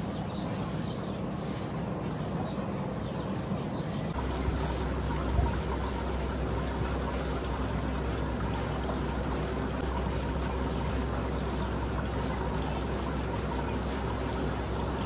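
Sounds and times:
water running and pouring: 4.2s - 15.0s.

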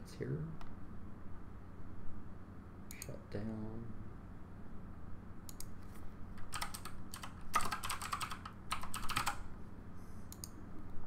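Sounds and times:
computer keyboard typing: 6.4s - 9.4s.

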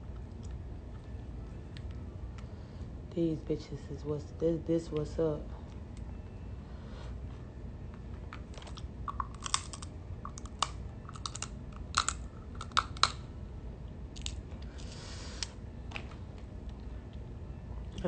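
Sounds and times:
person chewing food: 8.4s - 13.1s
sharp crunching clicks: 8.6s - 13.2s.

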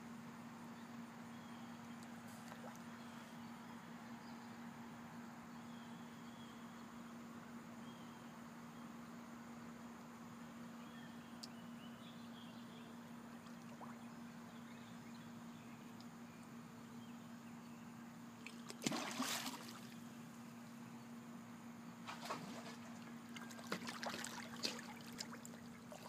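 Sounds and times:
steady low hum: 0.0s - 26.0s
splash in lake water: 18.4s - 20.0s, 22.0s - 26.0s.

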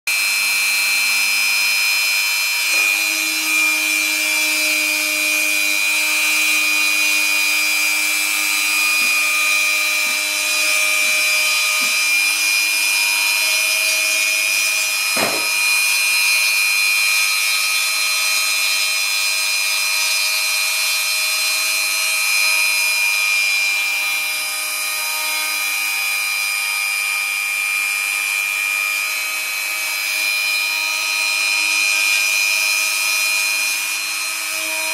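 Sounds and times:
rotary tool high whine: 0.1s - 34.9s.

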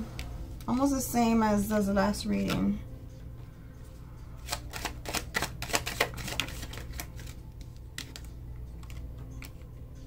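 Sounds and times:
cards clicking and snapping: 4.4s - 9.7s.

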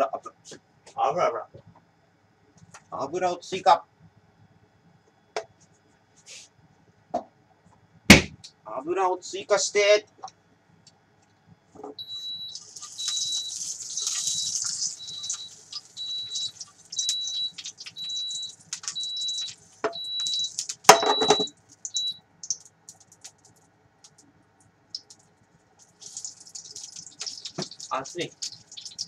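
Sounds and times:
cooktop beeping: 11.9s - 23.3s, 26.0s - 29.0s
insects sizzling in hot oil: 12.0s - 21.0s, 21.6s - 23.5s, 24.9s - 25.2s, 25.8s - 29.0s.

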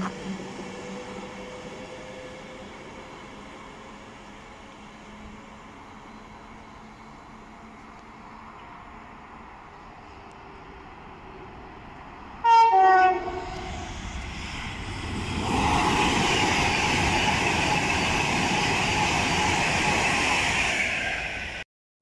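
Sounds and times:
train rushing past: 0.0s - 21.6s
two-tone train horn: 12.4s - 13.7s.

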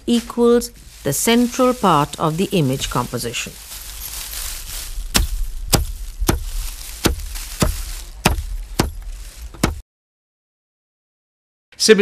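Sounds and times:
sharp chopping knocks: 5.1s - 9.8s.

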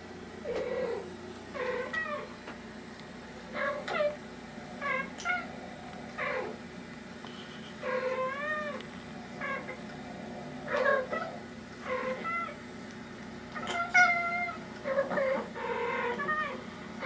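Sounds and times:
cats chirping meows: 0.5s - 2.3s, 3.5s - 4.2s, 7.8s - 8.8s, 11.8s - 12.6s, 13.5s - 16.6s.

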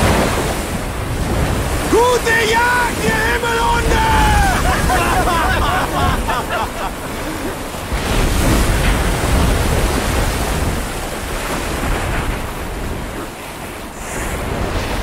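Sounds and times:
gusting wind: 0.0s - 15.0s
heavy waves breaking: 0.0s - 15.0s
faint shouting: 1.9s - 6.2s.

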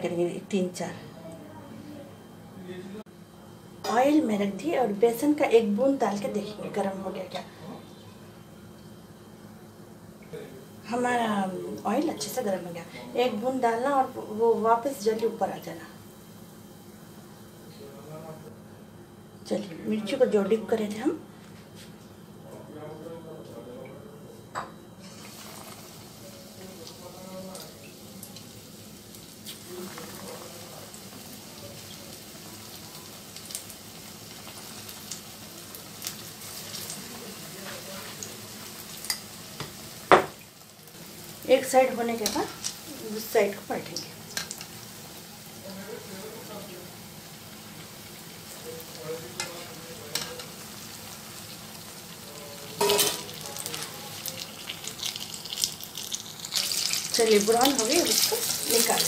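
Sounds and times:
deep-frying sizzle: 25.0s - 59.0s.

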